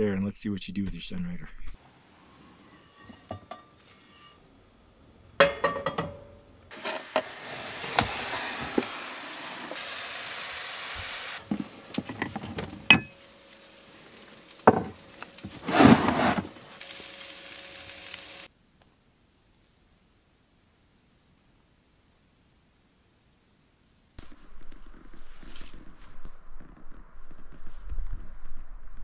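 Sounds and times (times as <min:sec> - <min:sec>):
spatula scraping pan: 0:02.7 - 0:04.4, 0:06.7 - 0:09.8
frying pan clanking on hook: 0:05.4 - 0:06.3
meat sizzling in frying pan: 0:08.9 - 0:11.9, 0:16.7 - 0:18.5.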